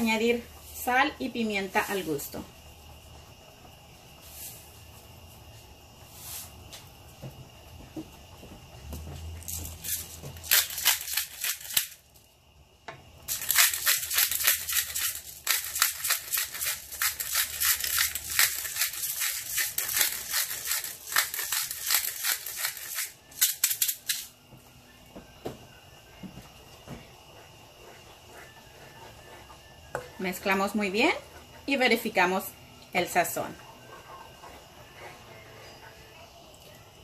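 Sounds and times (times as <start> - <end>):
pepper grinder crackling clicks: 9.5 - 12.0, 13.3 - 24.3.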